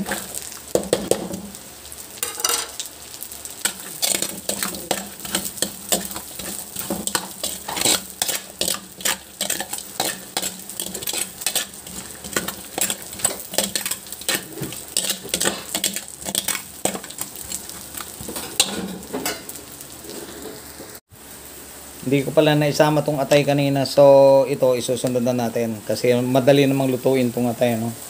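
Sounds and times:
spatula scraping against wok: 0:00.0 - 0:01.6, 0:03.5 - 0:21.0
oil sizzling: 0:00.0 - 0:28.0.

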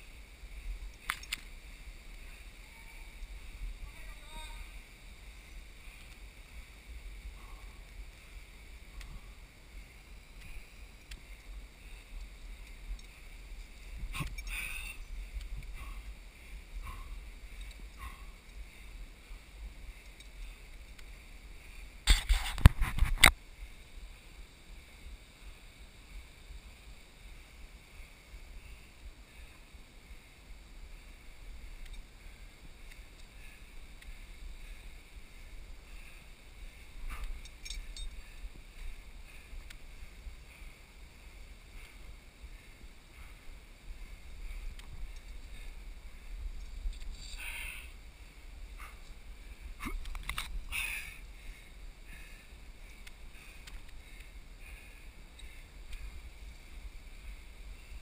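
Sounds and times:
steady low rumble: 0:00.0 - 0:22.1, 0:23.3 - 0:58.0
small clicks: 0:00.9 - 0:02.2, 0:49.8 - 0:50.6.

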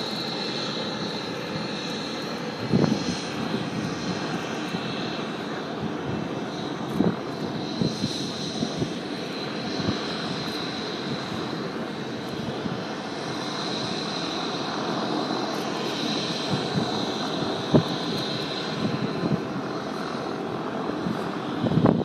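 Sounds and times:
helicopter turbine engines running: 0:00.0 - 0:22.0.

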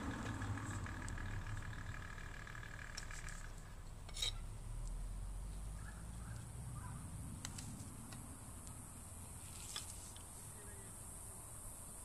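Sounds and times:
low steady rumble: 0:00.0 - 0:12.0
knife scraping wood: 0:04.1 - 0:04.4.

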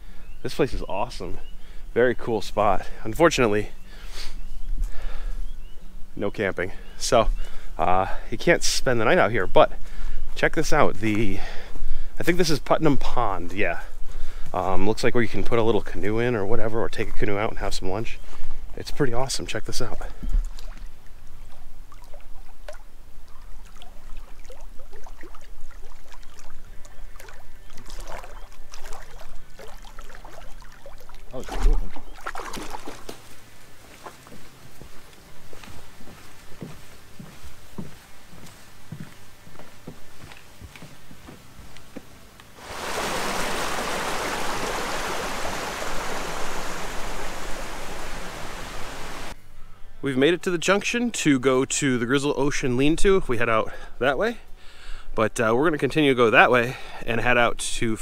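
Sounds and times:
small waves lapping at shore: 0:20.4 - 0:33.4, 0:42.6 - 0:49.3
faint footsteps: 0:31.8 - 0:49.4
forest stream rushing: 0:42.5 - 0:49.4.

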